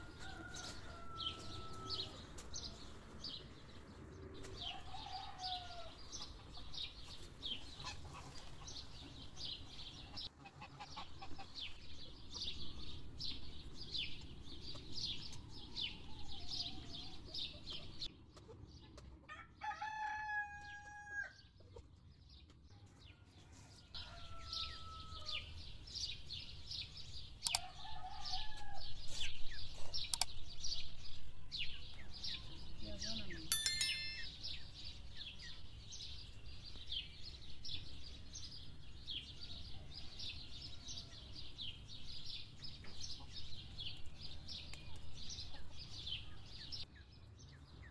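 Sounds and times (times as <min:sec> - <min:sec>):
rooster crowing: 0:00.0 - 0:02.2, 0:04.6 - 0:06.0, 0:19.6 - 0:21.4, 0:23.6 - 0:25.5, 0:27.6 - 0:28.9
small birds chirping: 0:00.2 - 0:19.2, 0:23.8 - 0:47.9.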